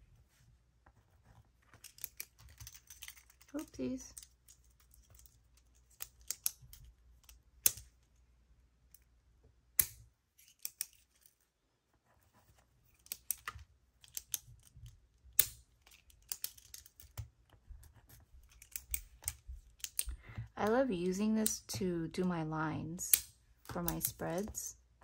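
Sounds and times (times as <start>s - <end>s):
pens clicking and tapping: 1.7s - 8.0s, 12.9s - 20.5s, 23.1s - 24.7s.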